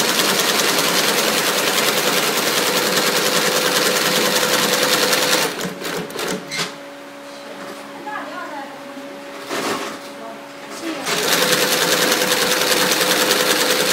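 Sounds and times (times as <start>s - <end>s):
sewing machine stitching: 0.0s - 6.5s, 11.0s - 13.9s.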